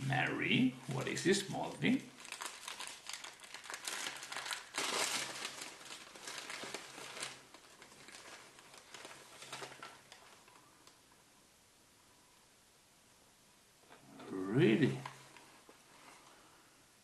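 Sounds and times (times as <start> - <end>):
gift wrapping crinkling: 1.0 - 11.0.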